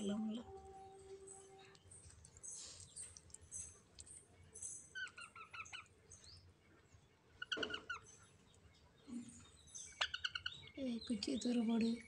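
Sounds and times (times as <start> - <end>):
parakeet chirping: 4.6 - 5.9, 9.6 - 11.6.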